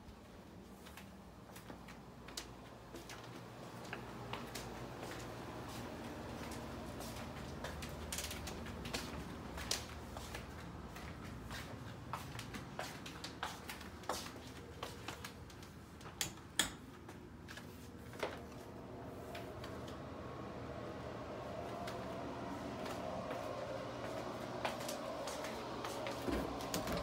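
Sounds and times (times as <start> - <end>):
low room hum: 0.0 - 27.0
footsteps on hardwood floor: 22.8 - 27.0.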